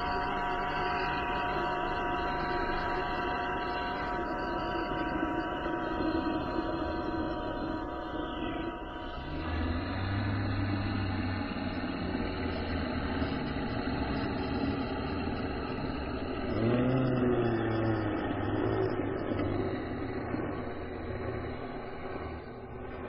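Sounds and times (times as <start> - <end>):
dense noisy layer: 0.0 - 23.0
low rumbling drone: 0.0 - 23.0
wavering pitched tone: 0.0 - 23.0.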